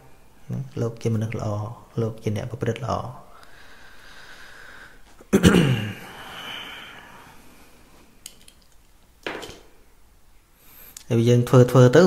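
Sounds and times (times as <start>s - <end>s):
man coughing: 5.3s - 7.0s.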